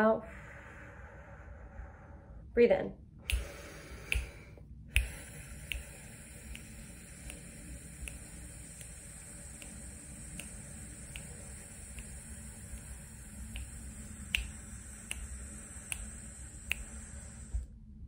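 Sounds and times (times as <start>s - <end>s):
breath hissing through lips: 0.0s - 2.5s, 3.3s - 17.7s
fingers snapping: 3.3s - 17.6s.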